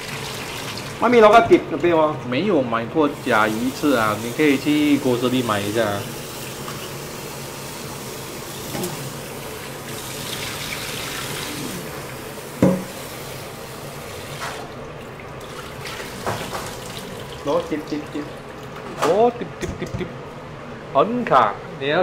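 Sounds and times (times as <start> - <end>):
sharp knock: 12.6 - 13.0
tap water splashing into steel bowl: 12.6 - 13.0, 15.5 - 17.1.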